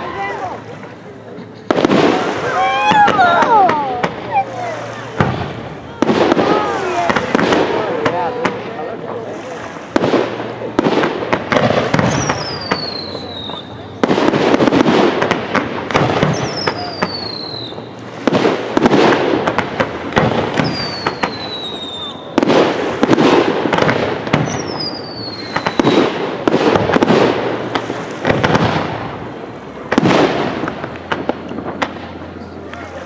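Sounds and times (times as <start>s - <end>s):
firework crackling: 0.0s - 33.0s
falling firework whistle: 2.0s - 5.2s, 11.8s - 14.1s, 16.0s - 18.0s, 20.5s - 23.2s, 23.8s - 26.2s
firework shells bursting: 9.9s - 32.4s.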